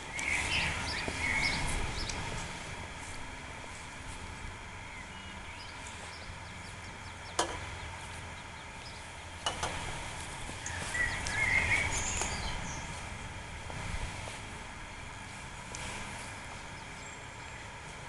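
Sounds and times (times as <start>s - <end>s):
bird chirps: 0.0s - 2.2s, 4.8s - 9.5s, 10.6s - 13.0s
wind on microphone: 0.0s - 4.8s.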